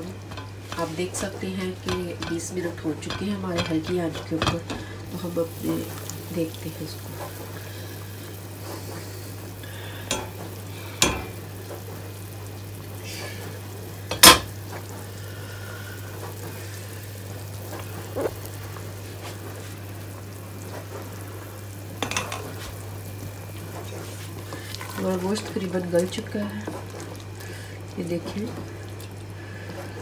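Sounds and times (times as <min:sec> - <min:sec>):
wooden spatula stirring pot: 0:00.0 - 0:07.7, 0:23.6 - 0:28.8
stew bubbling and sizzling: 0:00.0 - 0:30.0
steel pot and lid clanking: 0:10.1 - 0:10.4, 0:11.0 - 0:11.4, 0:14.1 - 0:14.5.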